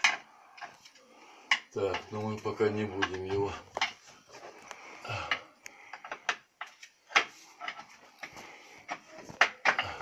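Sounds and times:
hands handling electrical wiring: 0:00.0 - 0:04.8.

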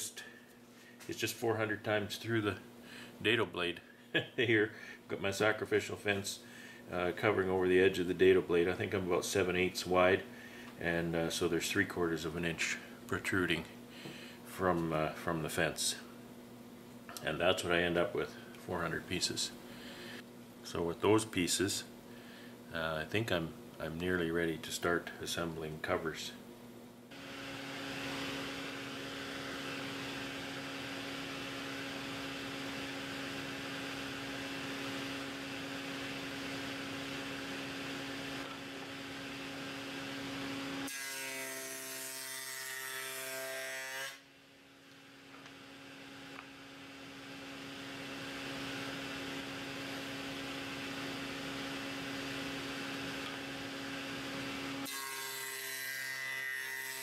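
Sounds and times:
table saw humming: 0:27.1 - 0:57.0
saw cutting wood: 0:40.4 - 0:44.2, 0:54.1 - 0:57.0.

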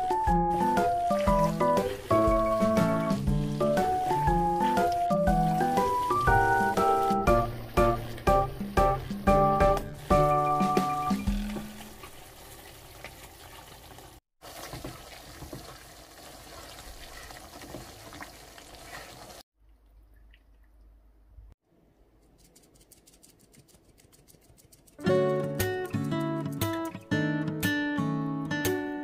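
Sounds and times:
sauce sizzling in frying pan: 0:00.0 - 0:19.4
acoustic guitar music: 0:25.0 - 0:29.0.

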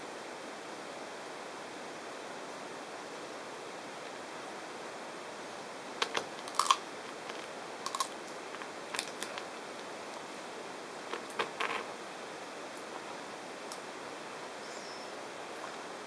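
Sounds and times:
tortoise crunching cactus: 0:06.0 - 0:10.3.

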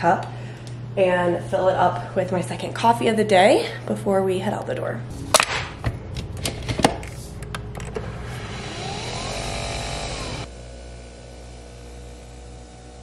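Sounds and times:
coffee machine motor whir: 0:06.2 - 0:13.0.

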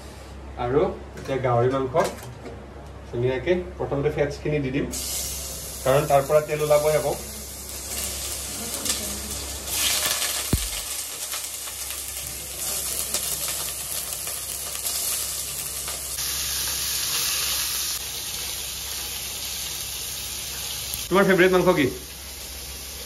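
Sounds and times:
pork sizzling in a pot: 0:04.9 - 0:23.0.

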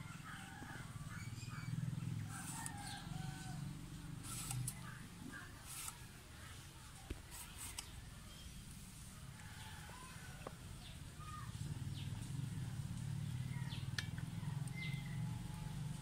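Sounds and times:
rooster crowing: 0:02.2 - 0:03.9, 0:09.3 - 0:10.5.

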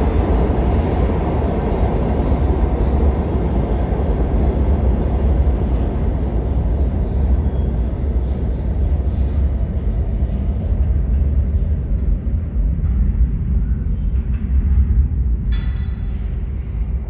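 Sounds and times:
subway train wheels rumbling on rails: 0:00.0 - 0:17.0.

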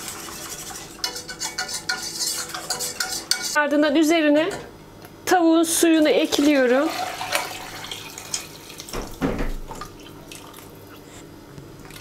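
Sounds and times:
dull knock: 0:09.0 - 0:09.6.

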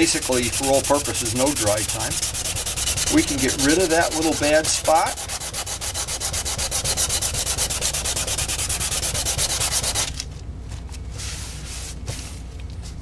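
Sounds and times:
hand sanding strokes: 0:00.0 - 0:10.2.

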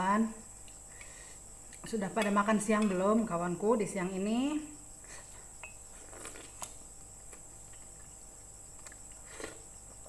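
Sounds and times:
slurp from a spoon: 0:09.2 - 0:09.6.

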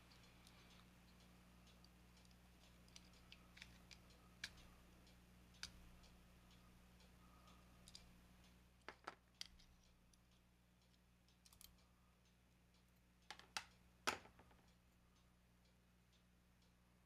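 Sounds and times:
metallic clicks of a toy car: 0:09.2 - 0:10.0, 0:10.8 - 0:11.8.

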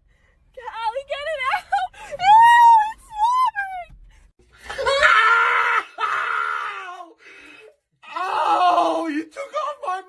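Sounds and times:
man screaming: 0:04.8 - 0:07.2, 0:08.0 - 0:10.0.

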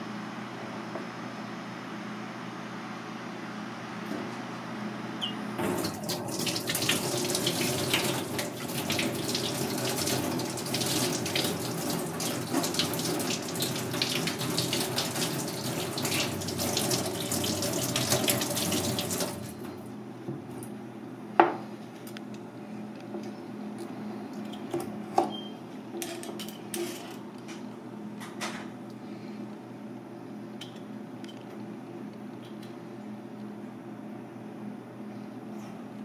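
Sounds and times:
shellfish rinsed by hand: 0:05.6 - 0:19.8.

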